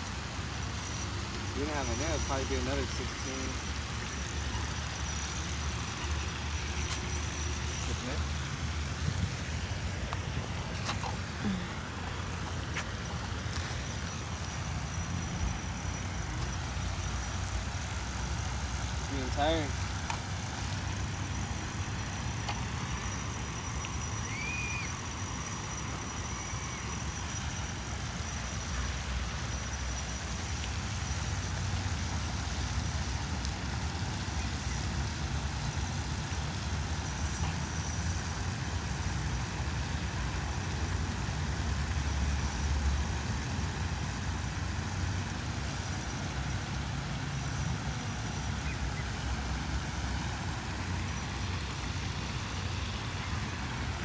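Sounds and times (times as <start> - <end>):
low outdoor rumble: 0.0 - 54.0
hiss: 10.6 - 54.0.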